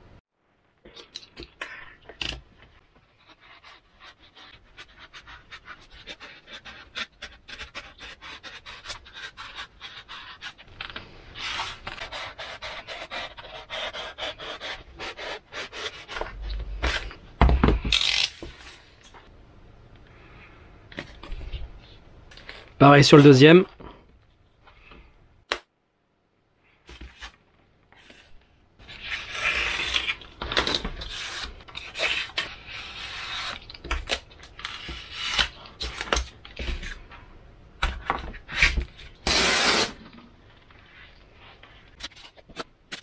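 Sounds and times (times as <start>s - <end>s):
utility knife sawing through foam: 11.4s - 16.1s.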